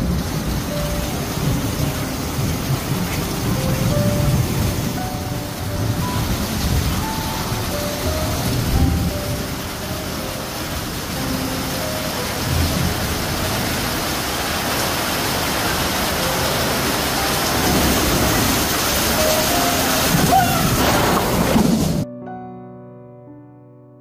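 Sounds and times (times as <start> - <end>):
thunder: 0.0 - 9.5, 12.4 - 14.0, 17.5 - 22.1
heavy rain pouring: 0.0 - 22.1
soft piano notes: 0.0 - 24.0.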